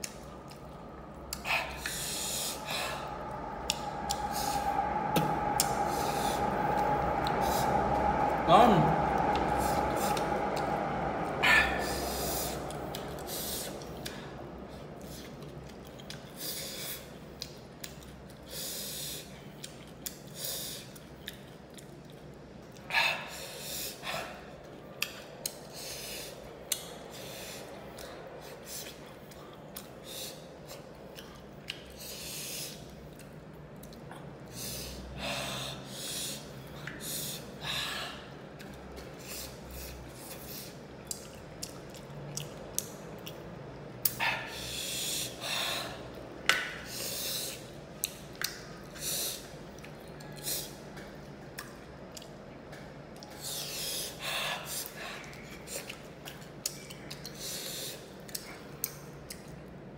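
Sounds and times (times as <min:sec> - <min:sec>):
sharp sniffs: 0:01.4 - 0:03.1, 0:16.4 - 0:17.1, 0:18.5 - 0:19.3, 0:32.0 - 0:32.8, 0:39.2 - 0:40.8, 0:44.2 - 0:46.0, 0:46.8 - 0:47.6, 0:49.0 - 0:49.5, 0:50.4 - 0:50.8, 0:53.4 - 0:55.9, 0:57.4 - 0:58.1
chewing and lip smacking: 0:15.0 - 0:22.9, 0:38.6 - 0:44.6, 0:48.0 - 0:53.8, 0:54.8 - 0:59.8.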